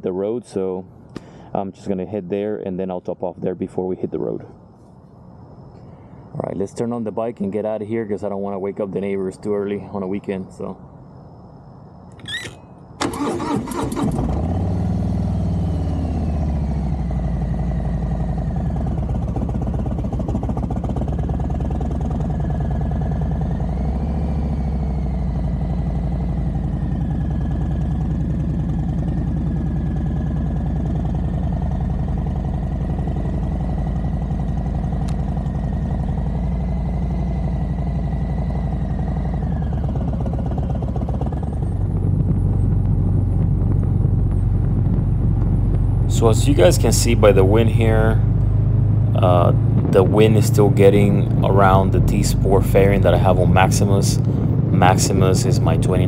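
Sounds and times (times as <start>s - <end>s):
motorcycle engine starting and idling: 12.2s - 56.0s.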